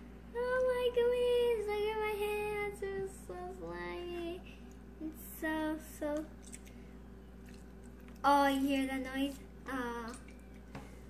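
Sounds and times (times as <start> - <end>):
girl singing a wordless tune: 0.3 - 6.4, 8.1 - 10.5.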